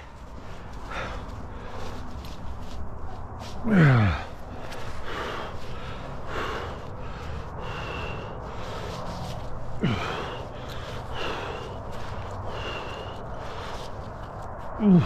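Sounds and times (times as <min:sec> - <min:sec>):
person breathing heavily: 0:00.0 - 0:15.0
person sighing: 0:03.6 - 0:04.3, 0:09.8 - 0:10.4, 0:14.8 - 0:15.0.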